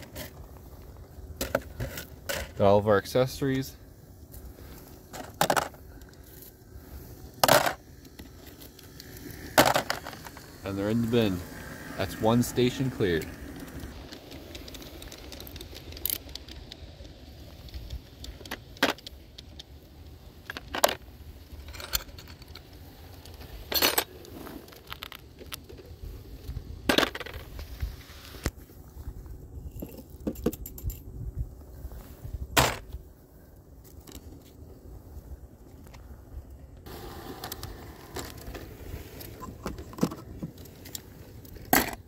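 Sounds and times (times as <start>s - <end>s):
plastic figures clattering into a bin: 5.1s - 5.8s, 7.4s - 7.8s, 9.6s - 10.4s.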